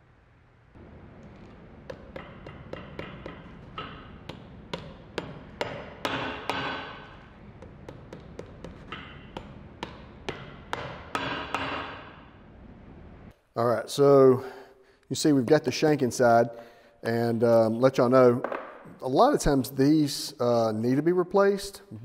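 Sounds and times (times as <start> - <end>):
hammer tapping on shoe sole: 1.8 - 11.8.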